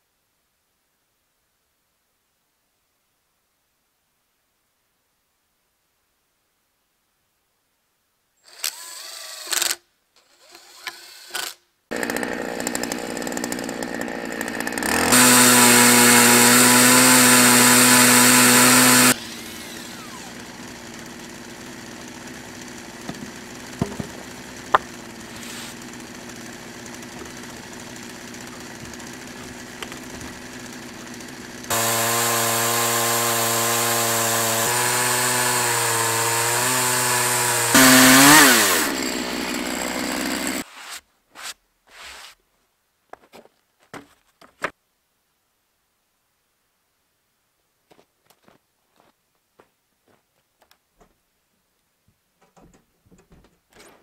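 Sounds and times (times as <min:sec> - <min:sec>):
chainsaw cutting log: 0:08.5 - 0:40.9.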